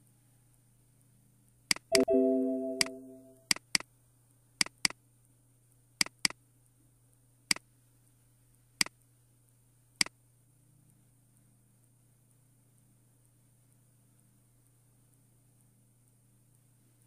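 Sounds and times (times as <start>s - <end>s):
computer mouse button clicks: 1.7s - 3.6s.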